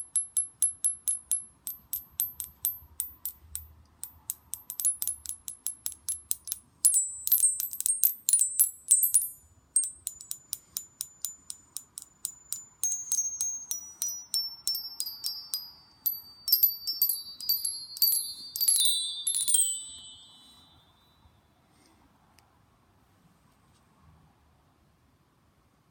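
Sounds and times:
metal chime bars struck: 0:00.0 - 0:20.8.

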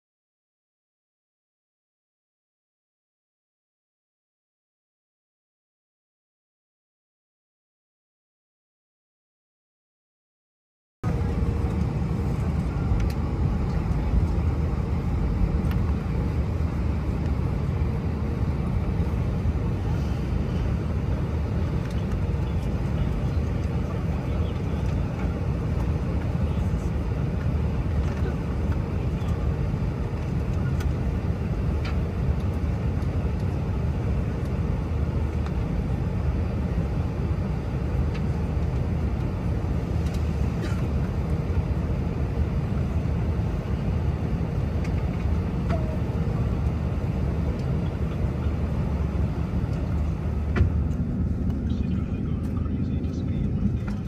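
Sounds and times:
airplane engine drone in cabin: 0:11.0 - 0:54.0.

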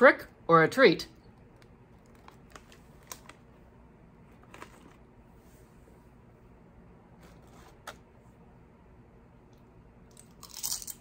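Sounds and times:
room hum: 0:00.0 - 0:11.0
chip bag crinkling: 0:01.9 - 0:03.5, 0:10.2 - 0:11.0.

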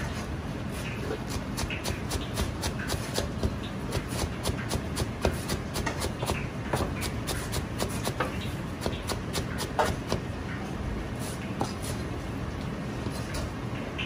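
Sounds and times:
knife chopping on cutting board: 0:01.2 - 0:10.2.

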